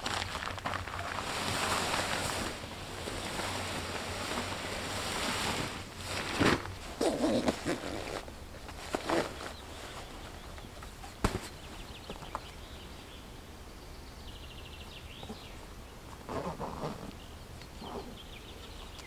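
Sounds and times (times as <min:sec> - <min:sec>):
nylon sheet rustling: 0:00.0 - 0:11.7.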